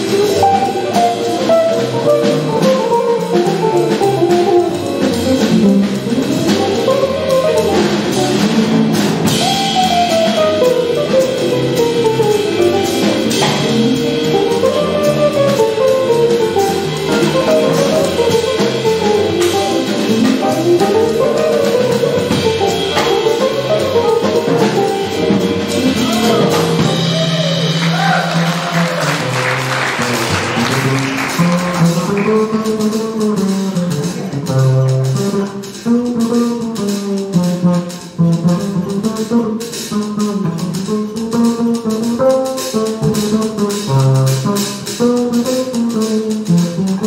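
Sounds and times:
drum kit: 0:00.0 - 0:47.0
walking upright bass: 0:00.0 - 0:47.0
guitar solo: 0:25.8 - 0:29.3.

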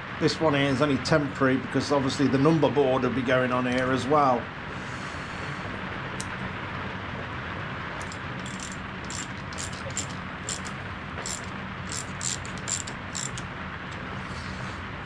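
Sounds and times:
small metal parts clinking: 0:08.0 - 0:14.0.

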